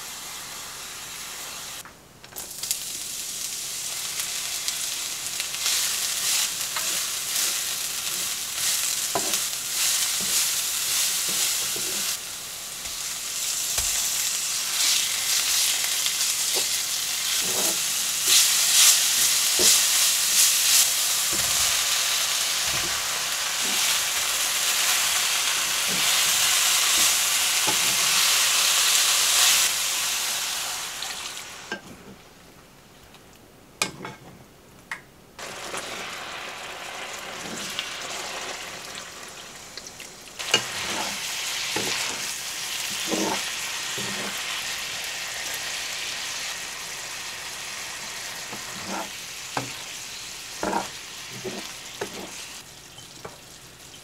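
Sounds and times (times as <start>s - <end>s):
food sizzling in frying pan: 0.0s - 1.8s, 2.4s - 31.8s, 35.4s - 54.0s
wooden spatula scraping pan: 17.3s - 18.5s, 40.6s - 41.2s, 42.9s - 43.4s, 44.0s - 44.4s, 48.5s - 49.8s, 50.6s - 52.4s.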